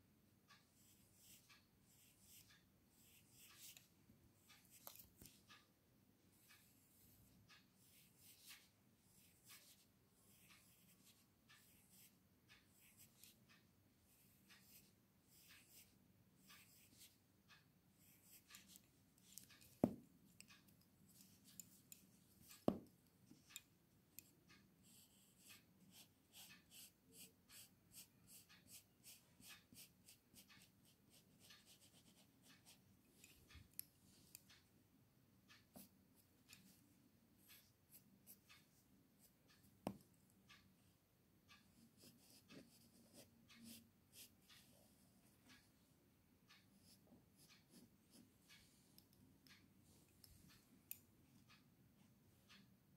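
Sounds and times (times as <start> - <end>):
pencil scratching on paper: 0.8 - 5.6, 7.8 - 13.4, 14.1 - 17.2, 18.0 - 20.5, 24.2 - 33.4, 41.5 - 45.0, 46.8 - 48.6.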